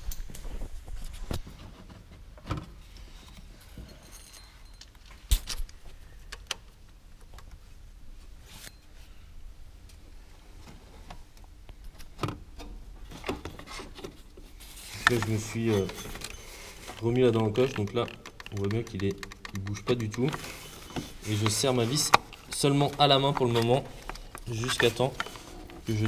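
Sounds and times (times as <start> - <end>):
metallic clicks of tools: 17.1 - 20.4.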